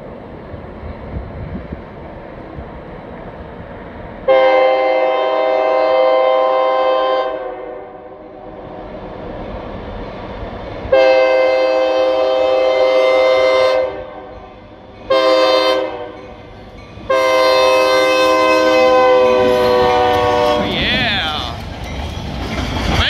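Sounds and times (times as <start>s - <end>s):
low rumble of train: 0.0s - 23.0s
locomotive air horn blasts: 4.3s - 8.1s, 10.9s - 14.4s, 15.1s - 16.2s, 17.1s - 20.8s.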